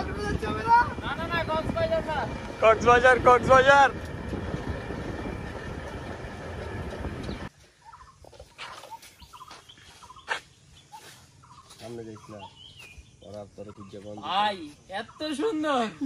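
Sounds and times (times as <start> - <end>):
vehicle engine noise: 0.0 - 7.5
wind buffeting: 0.0 - 7.5.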